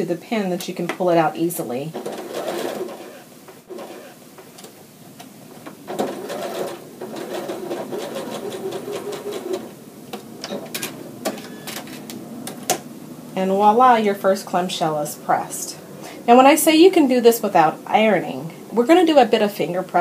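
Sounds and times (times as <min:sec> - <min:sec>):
sewing machine stitching: 0:01.9 - 0:04.2, 0:05.8 - 0:09.8.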